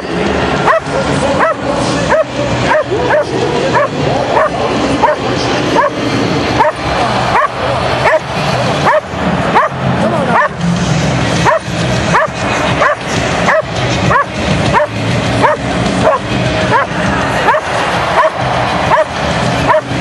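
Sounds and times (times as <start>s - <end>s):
stadium crowd noise: 0.0s - 20.0s
dog yipping: 0.7s - 5.2s, 7.4s - 8.2s, 8.8s - 9.0s, 9.6s - 9.8s, 11.4s - 16.9s.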